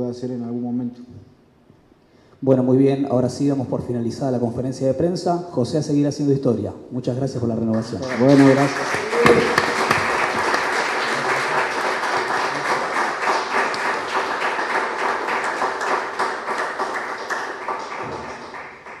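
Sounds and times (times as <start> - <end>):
many hands clapping: 7.8 - 19.0.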